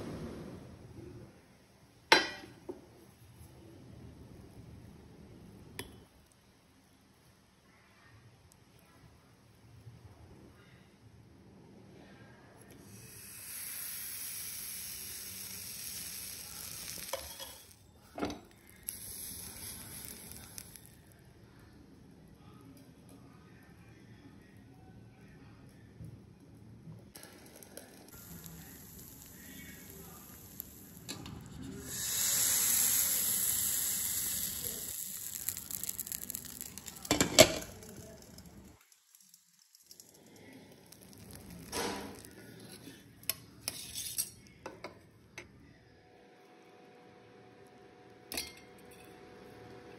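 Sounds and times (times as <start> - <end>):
batter sizzling on hot pan: 12.8 - 21.1, 27.2 - 44.4
light crackling: 18.5 - 21.2, 27.2 - 44.3.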